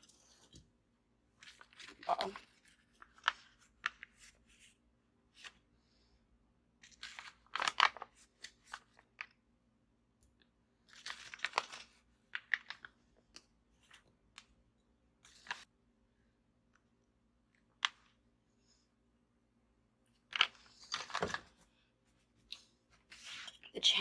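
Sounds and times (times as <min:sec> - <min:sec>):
plastic packaging crinkling: 0:06.9 - 0:09.3.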